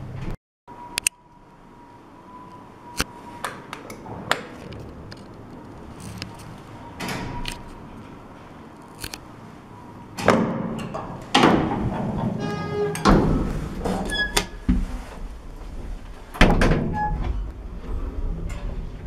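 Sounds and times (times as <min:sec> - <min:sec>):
lift doors clattering open: 0:04.0 - 0:08.8, 0:09.9 - 0:19.0.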